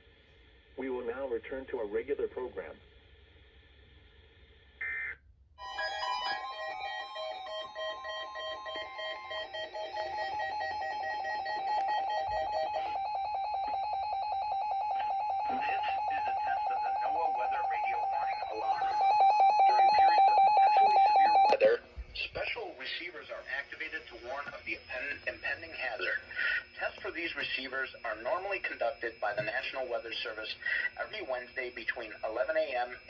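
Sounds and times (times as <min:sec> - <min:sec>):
weather radio alert beeps: 0:05.6 - 0:21.8, 0:24.9 - 0:33.0.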